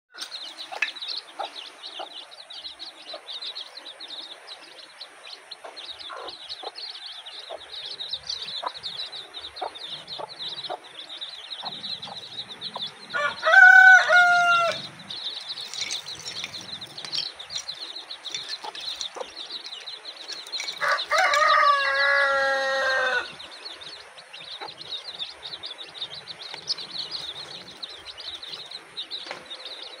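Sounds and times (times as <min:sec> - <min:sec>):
chicks peeping: 0:00.1 - 0:30.0
rooster crowing: 0:13.1 - 0:15.0, 0:20.7 - 0:23.4.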